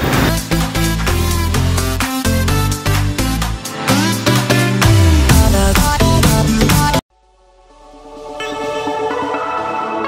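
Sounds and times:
electronic music with drum beat: 0.0s - 7.0s.

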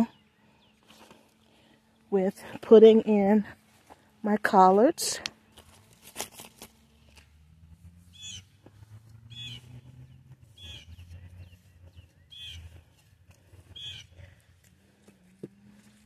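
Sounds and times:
low steady hum: 0.0s - 16.0s
bird calling: 8.1s - 13.0s, 13.6s - 14.3s.

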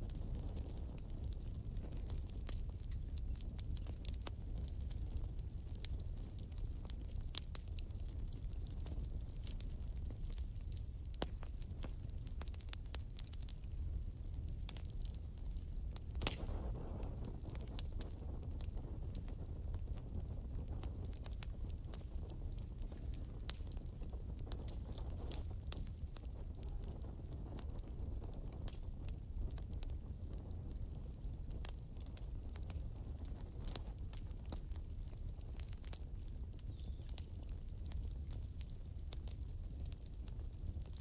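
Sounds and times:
low rumble of burning: 0.0s - 41.0s
wood fire crackling and popping: 0.0s - 41.0s.

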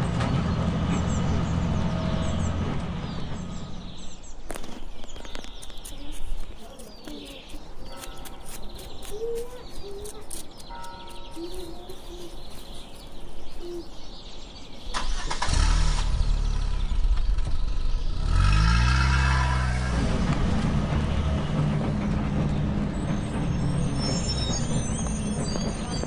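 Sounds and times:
diesel engine starting and running: 0.0s - 4.6s, 14.8s - 26.0s.

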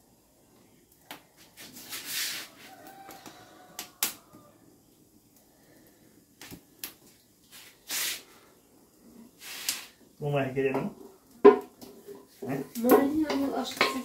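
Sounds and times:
metal pot clinking against glass plates: 13.0s - 14.0s.

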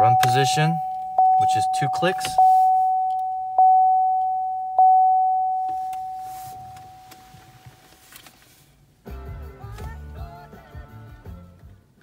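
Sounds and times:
dashboard warning chime ding: 0.0s - 7.2s.

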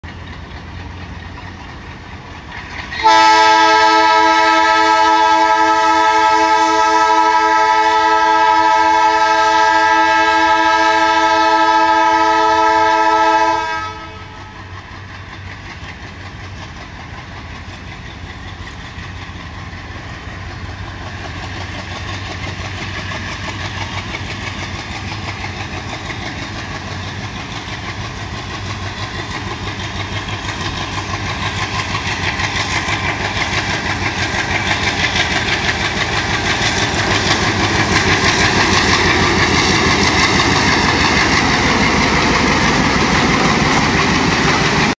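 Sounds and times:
diesel engine chugging: 0.0s - 45.0s
two-tone locomotive horn: 2.9s - 14.8s.

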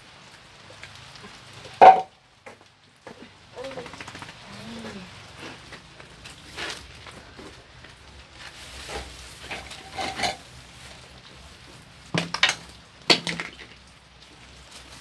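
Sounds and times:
objects scraping and rustling: 3.0s - 12.7s
hard objects clattering: 8.8s - 10.5s.

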